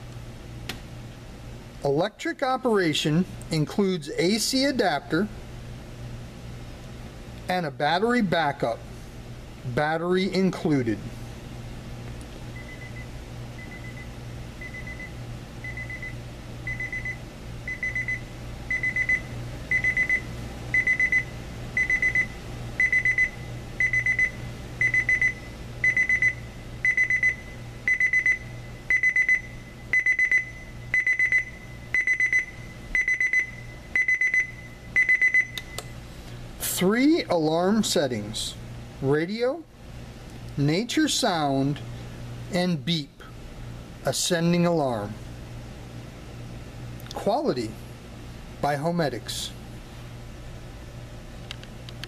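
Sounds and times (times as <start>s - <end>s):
rapid high alarm beeps: 12.6s - 35.6s.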